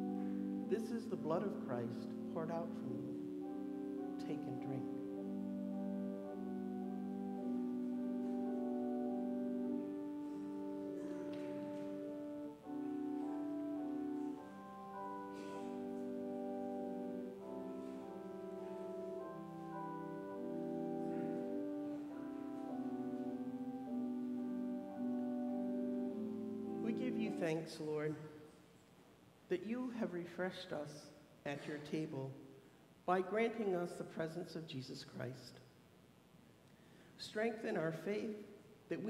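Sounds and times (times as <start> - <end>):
slow keyboard chords: 0.0 - 28.4.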